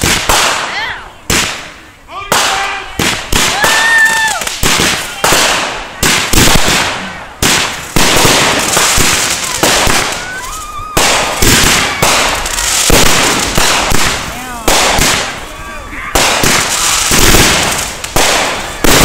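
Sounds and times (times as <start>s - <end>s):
fireworks bangs: 0.0s - 19.0s.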